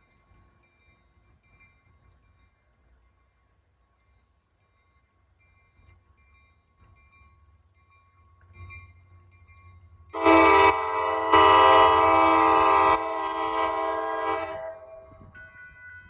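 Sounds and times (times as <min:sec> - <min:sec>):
crossing warning bell ringing: 0:00.0 - 0:16.0
train horn blast: 0:10.2 - 0:15.2.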